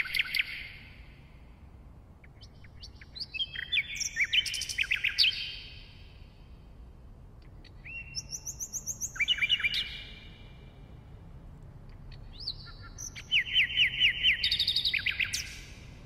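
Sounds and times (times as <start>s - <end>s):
nightingale singing: 0.0s - 1.2s, 2.2s - 6.4s, 7.4s - 10.6s, 11.9s - 16.0s.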